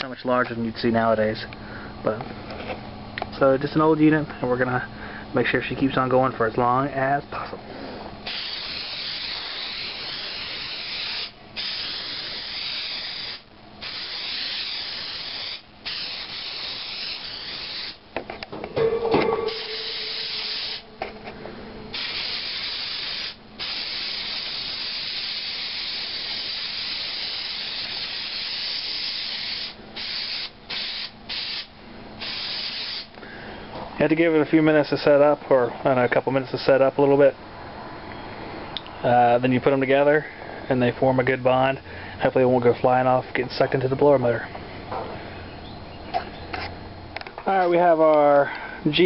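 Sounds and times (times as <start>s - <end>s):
aerosol spray hissing: 8.2s - 18.0s, 19.5s - 20.9s, 21.9s - 33.2s
knock with ringing tone: 18.8s - 19.6s.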